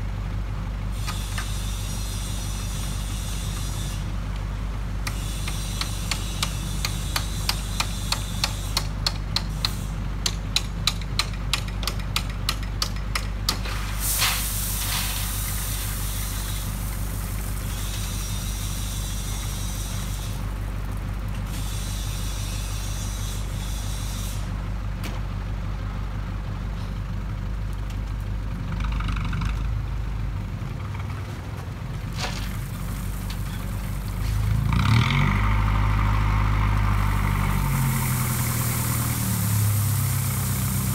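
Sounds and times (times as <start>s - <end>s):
short air hiss: 13.6s - 20.4s, 37.4s - 40.9s
diesel truck engine idling: 23.5s - 34.7s, 35.3s - 40.9s.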